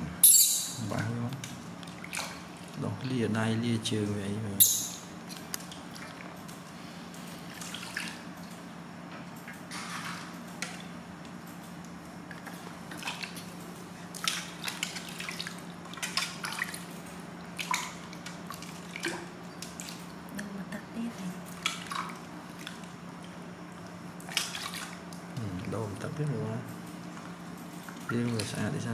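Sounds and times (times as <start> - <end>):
water splashing in metal basin: 7.4 - 8.3, 14.1 - 20.2, 21.5 - 23.0, 23.9 - 25.1.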